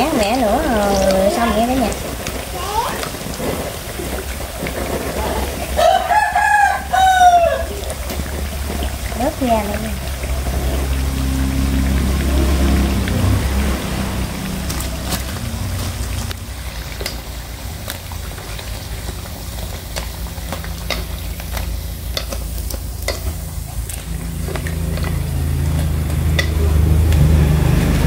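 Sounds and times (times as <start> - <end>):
oil sizzling: 0.0 - 28.0
sharp crackles and clicks: 0.0 - 28.0
low hum: 7.6 - 28.0.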